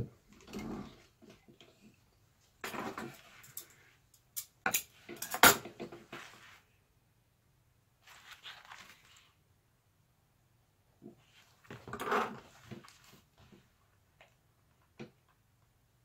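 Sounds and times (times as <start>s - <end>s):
fabric rustling: 6.0s - 6.8s, 8.0s - 9.4s.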